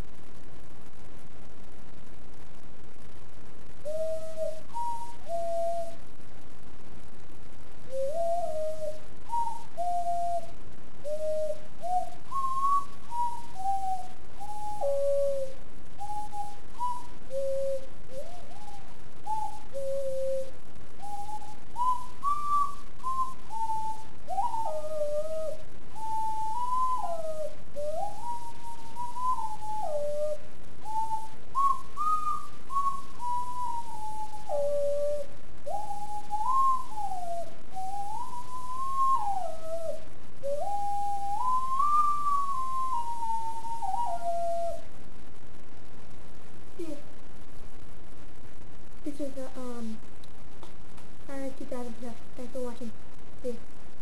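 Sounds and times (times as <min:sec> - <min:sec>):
background hiss: 0:00.0 - 0:54.0
ocarina melody: 0:03.8 - 0:06.1, 0:07.8 - 0:44.9.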